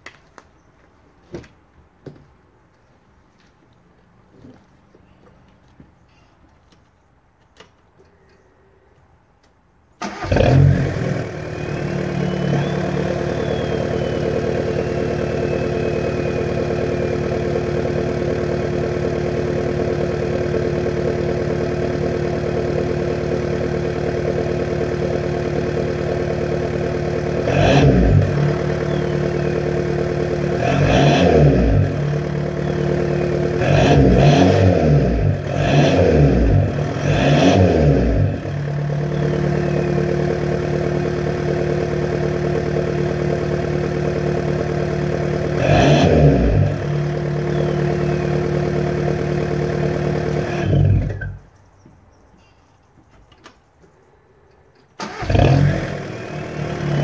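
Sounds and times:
diesel engine idling and revving: 0:10.0 - 0:51.5, 0:55.0 - 0:57.0.

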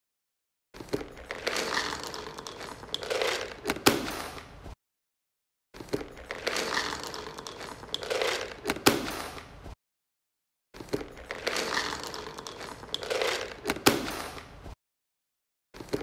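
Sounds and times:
dry kibble crackling and rattling: 0:00.8 - 0:04.5, 0:05.8 - 0:09.5, 0:10.8 - 0:14.5.

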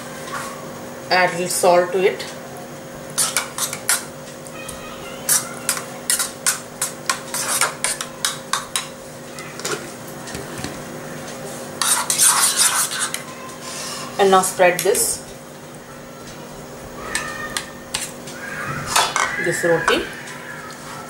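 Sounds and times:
spoon clinking and scraping bowl: 0:03.2 - 0:04.1, 0:05.3 - 0:08.9.

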